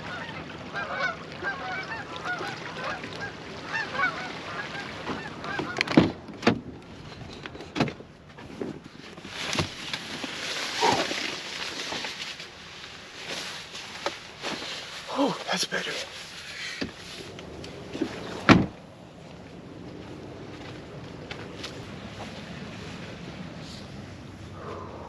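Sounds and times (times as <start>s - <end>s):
geese honking: 0.1s - 5.8s.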